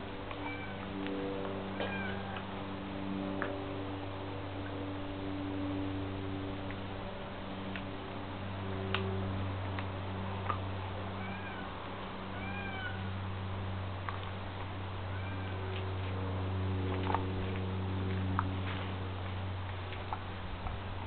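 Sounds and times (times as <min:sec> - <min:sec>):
steady low hum: 0:00.0 - 0:21.0
short mewing calls: 0:01.8 - 0:02.4, 0:11.2 - 0:13.1, 0:15.1 - 0:15.8
dog chewing raw chicken: 0:13.0 - 0:14.9, 0:15.6 - 0:21.0.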